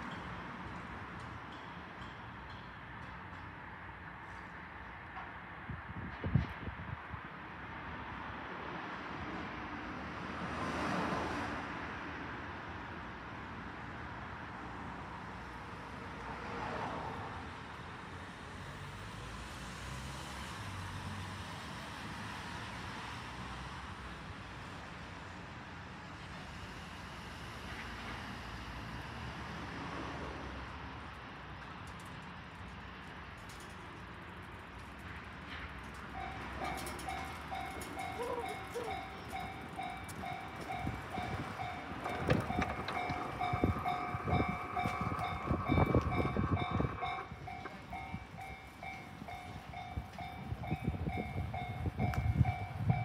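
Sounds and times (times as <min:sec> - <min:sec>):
road traffic rush: 0:00.0 - 0:53.0
distant traffic rumble: 0:31.6 - 0:53.0.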